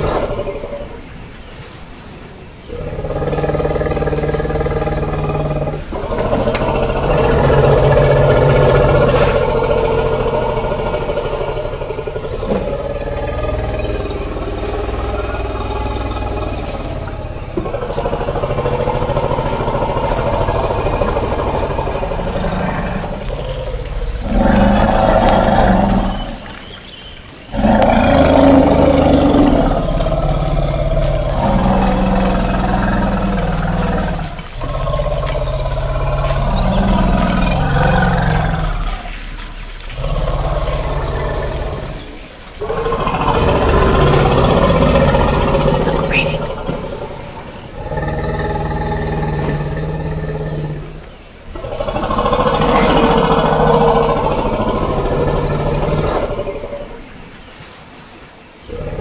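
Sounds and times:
elephant low drone: 0.0 - 59.0
elephant calling: 12.3 - 48.6.

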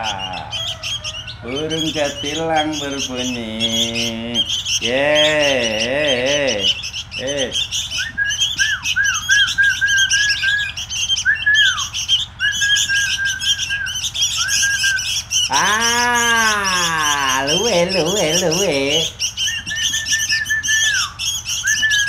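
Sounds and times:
man's wavering voice: 0.0 - 7.8, 15.5 - 19.3
fledglings chattering shrilly: 0.0 - 22.0.

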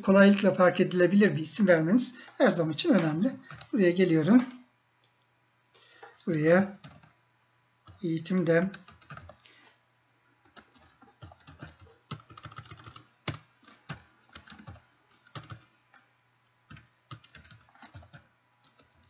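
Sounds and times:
typing on computer keyboard: 3.4 - 3.7, 6.8 - 7.1, 8.7 - 9.5, 10.4 - 16.1, 16.7 - 19.0.

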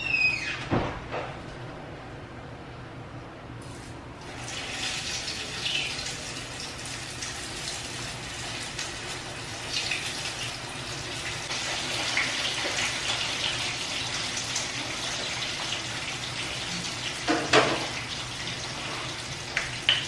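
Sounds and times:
water running: 4.2 - 20.0.

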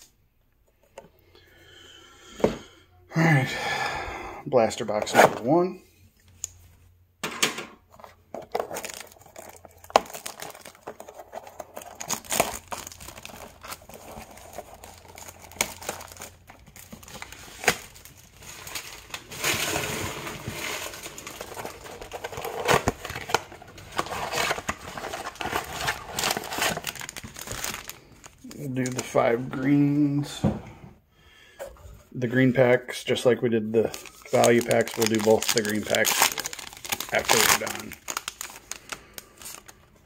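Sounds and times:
cardboard and foil packs rustling: 7.9 - 29.9, 33.8 - 40.0
plastic shrink-wrap crinkling: 8.4 - 29.2, 33.8 - 40.0.

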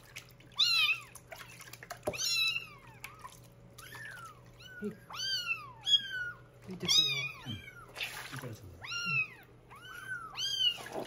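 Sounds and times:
kittens mewing: 2.2 - 8.2, 8.8 - 11.0.

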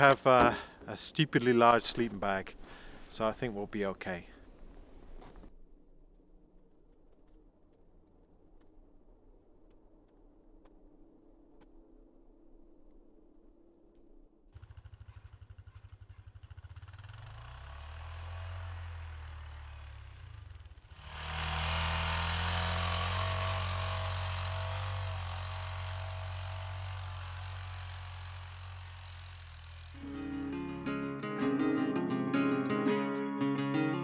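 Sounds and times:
utility vehicle engine revving: 16.6 - 34.0
music: 30.0 - 34.0.

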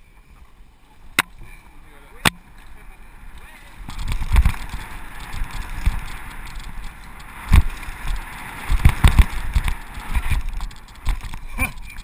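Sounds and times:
tyres and rushing air rumble: 2.4 - 11.5
bike knocks and rattles: 3.8 - 12.0.

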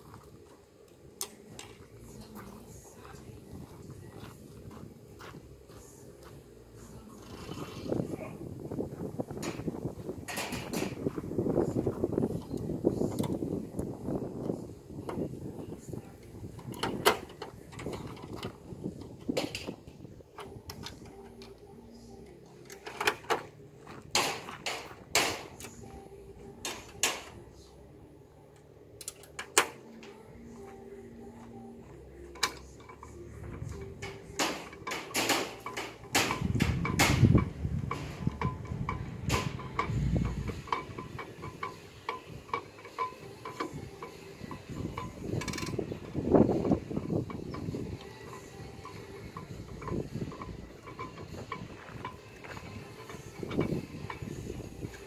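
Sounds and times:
metal latches clicking and clunking: 9.4 - 11.0, 16.6 - 21.7, 22.6 - 25.9, 26.6 - 27.4, 29.0 - 30.2, 32.3 - 55.0.

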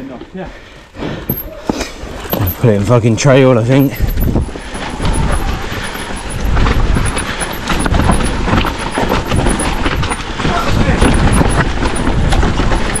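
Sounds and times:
bike tyre noise: 1.1 - 13.0
bike clattering and rattling: 1.3 - 13.0
heavy low rumble: 3.8 - 13.0.

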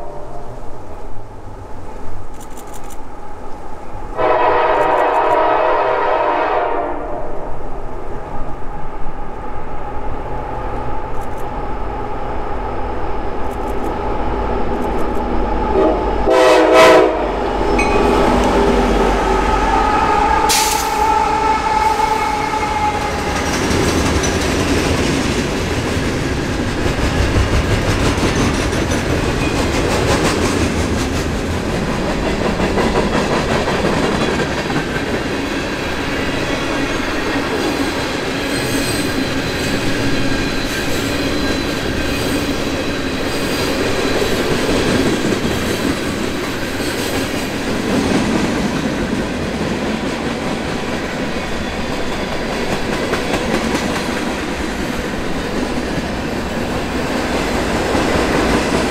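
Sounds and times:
train horn blast: 0.0 - 0.7, 4.2 - 7.6, 15.7 - 23.4
diesel locomotive rumbling: 7.5 - 58.9.

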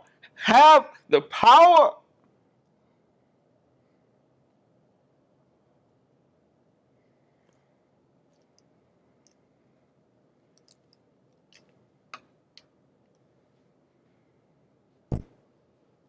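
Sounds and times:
faint clicks and taps: 10.5 - 13.3.

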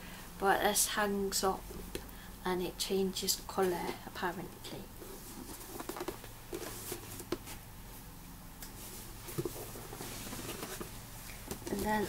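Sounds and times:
cardboard box being moved: 9.0 - 12.0.

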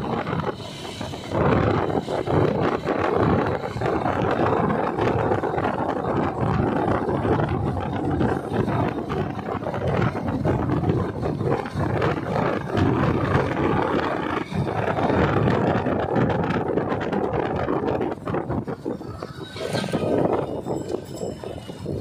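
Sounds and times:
motorcycle engine running: 0.0 - 22.0
road noise: 0.0 - 22.0
wind buffeting microphone: 0.0 - 22.0.

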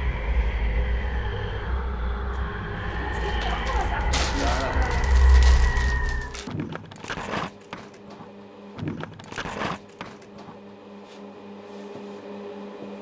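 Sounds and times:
rustling and handling noises: 3.1 - 8.2.

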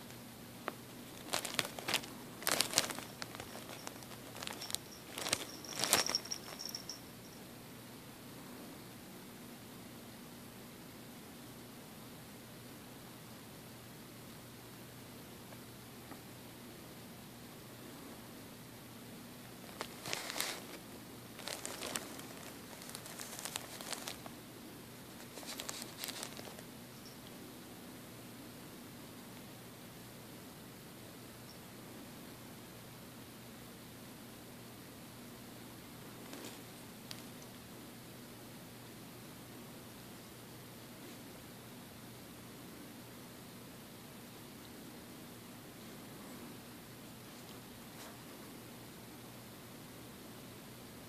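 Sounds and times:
plastic bottle crinkling: 1.1 - 6.9, 19.7 - 20.8, 21.4 - 24.3, 25.2 - 26.6.

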